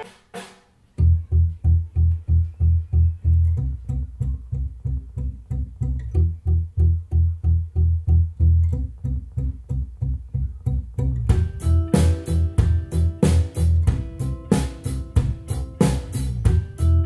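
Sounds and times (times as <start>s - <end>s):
rock song over speakers: 0.0s - 0.5s, 11.2s - 17.0s
cymbals: 0.0s - 0.6s
plucked bass line: 1.0s - 17.0s.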